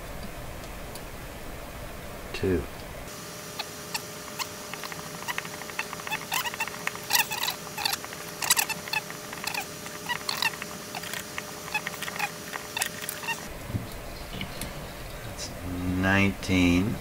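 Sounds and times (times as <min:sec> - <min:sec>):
wire winding scratchy clicks: 0:03.6 - 0:13.5.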